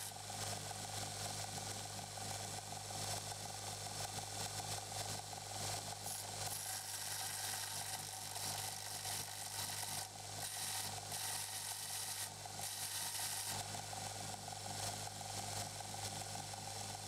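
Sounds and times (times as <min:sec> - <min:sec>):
belt grinder motor hum: 0:06.1 - 0:13.6
steel blade grinding: 0:06.1 - 0:13.6.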